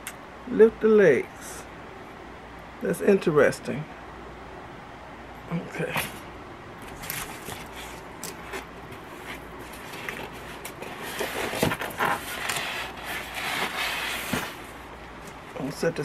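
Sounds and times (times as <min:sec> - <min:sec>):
cardboard scraping and rustling: 0:06.8 - 0:14.9.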